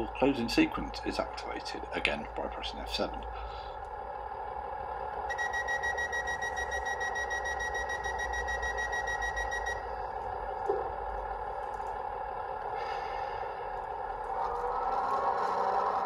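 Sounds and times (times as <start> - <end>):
diesel engine idling: 0.0 - 16.0
rapid high-pitched warning beeps: 5.3 - 9.9.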